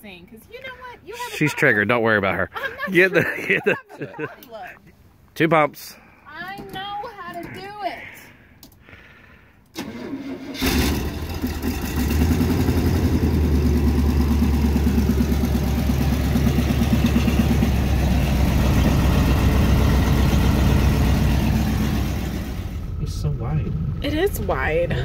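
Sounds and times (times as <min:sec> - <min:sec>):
pickup engine starting and idling: 0:09.7 - 0:25.0.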